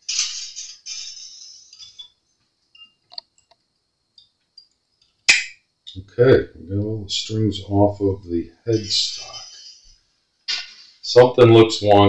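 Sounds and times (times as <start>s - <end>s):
sharp click: 5.3s - 5.6s.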